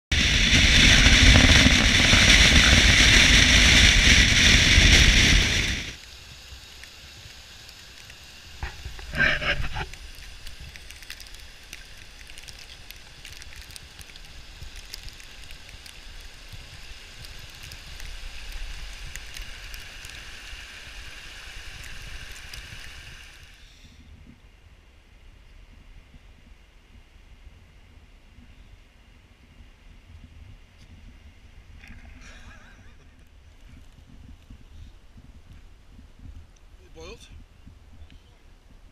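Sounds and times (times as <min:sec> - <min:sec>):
mountain stream rushing: 0:00.1 - 0:23.6.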